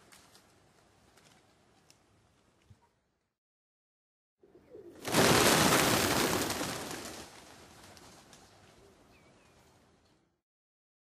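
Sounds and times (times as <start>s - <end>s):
pigeon wings flapping: 5.0s - 8.6s.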